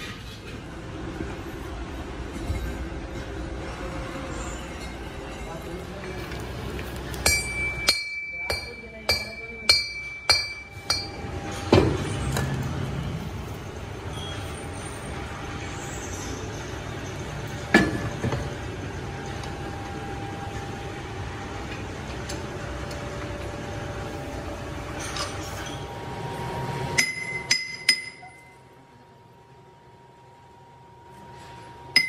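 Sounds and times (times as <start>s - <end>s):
workshop background: 0.0s - 32.0s.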